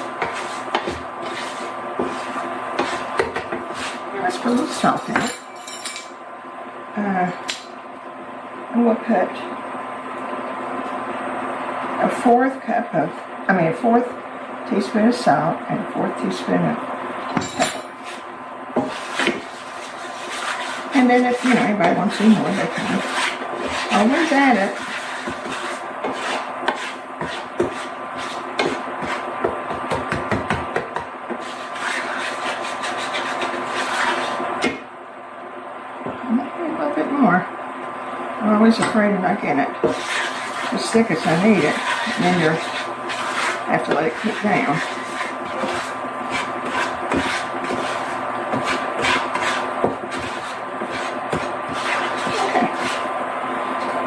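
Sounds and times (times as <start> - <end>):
spatula scraping skillet: 0.0 - 5.0, 17.7 - 29.8, 31.3 - 34.7, 39.7 - 54.0
steady hum: 0.0 - 54.0.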